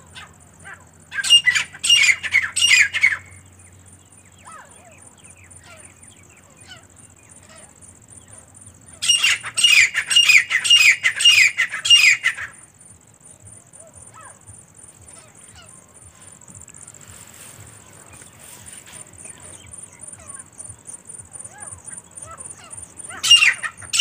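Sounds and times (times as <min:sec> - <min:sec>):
bird calling ringing notes: 0:00.0 - 0:24.0
small birds chirping: 0:00.0 - 0:24.0.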